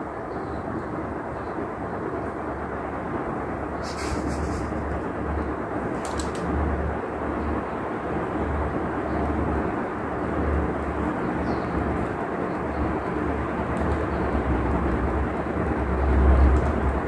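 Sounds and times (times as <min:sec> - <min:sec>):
ceiling fan running: 0:00.0 - 0:17.0
brief crackles: 0:06.0 - 0:06.5.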